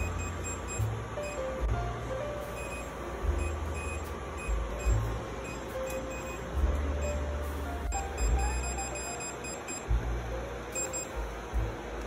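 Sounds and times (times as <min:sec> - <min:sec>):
touchscreen beeping: 0:00.0 - 0:01.4, 0:02.6 - 0:06.4, 0:07.9 - 0:09.9, 0:10.7 - 0:11.2.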